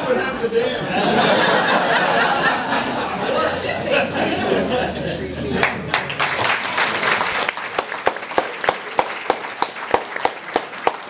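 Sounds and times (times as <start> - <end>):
audience applauding: 5.6 - 11.0.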